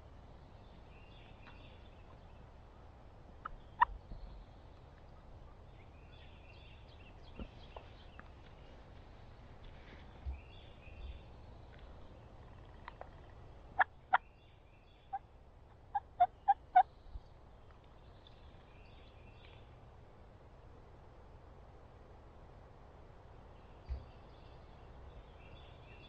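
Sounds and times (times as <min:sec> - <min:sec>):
faint songbird chirps: 0:00.0 - 0:08.9, 0:09.5 - 0:19.8, 0:23.4 - 0:26.0
turkey yelping: 0:15.9 - 0:16.8.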